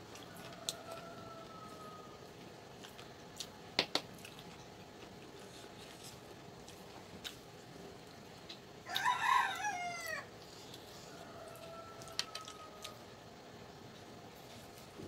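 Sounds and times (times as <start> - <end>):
rooster crowing: 0.2 - 2.3, 8.8 - 13.2.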